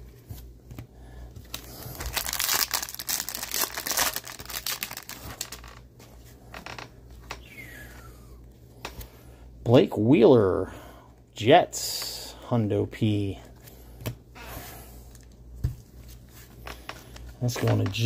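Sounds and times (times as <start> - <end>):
plastic packaging crinkling: 1.5 - 5.9.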